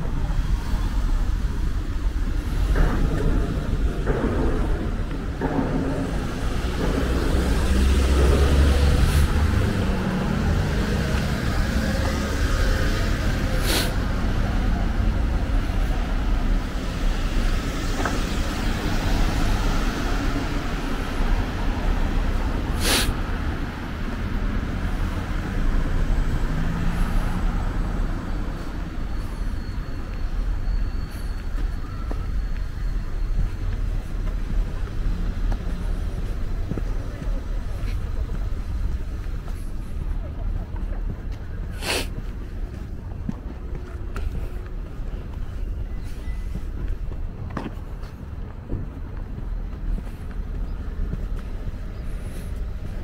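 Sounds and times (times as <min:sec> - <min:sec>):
road traffic rumble: 0:00.0 - 0:53.0
short sharp hisses: 0:13.6 - 0:14.0, 0:22.8 - 0:23.2, 0:41.8 - 0:42.1.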